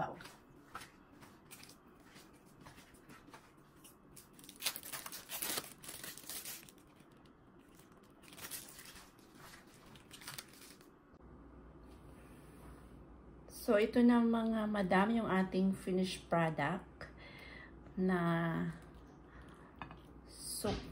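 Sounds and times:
plastic wrapping crinkling: 3.8 - 11.0.

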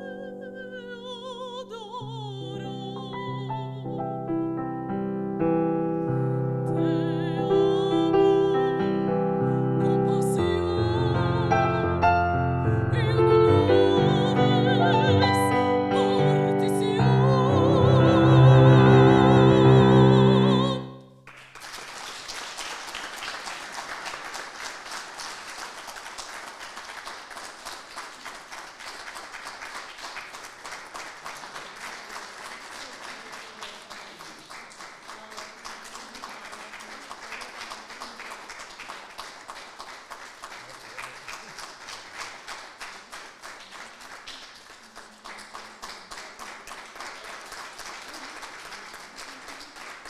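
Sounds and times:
woman singing operatically: 0.0 - 4.2, 6.5 - 21.0
piano chords: 0.0 - 21.3
applause: 21.2 - 50.0.

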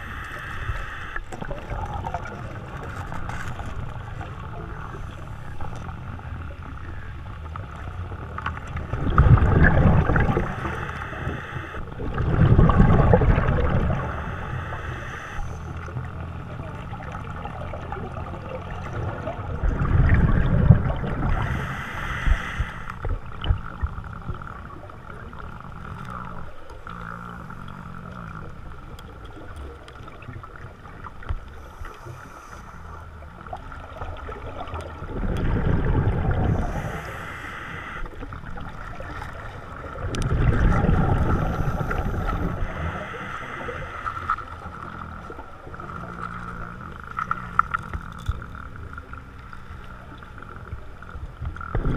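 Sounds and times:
hissing regulator breaths: 0.0 - 1.3, 13.7 - 15.7, 21.2 - 23.0, 36.4 - 38.2, 41.2 - 44.8
gurgling exhaled bubbles: 0.0 - 51.9
steady underwater hum: 0.0 - 51.9.

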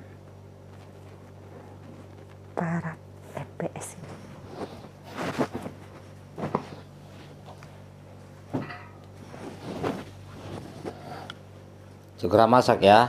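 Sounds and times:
steady low hum: 0.0 - 13.0
pillow fabric flapping: 4.0 - 7.5, 8.4 - 11.0.

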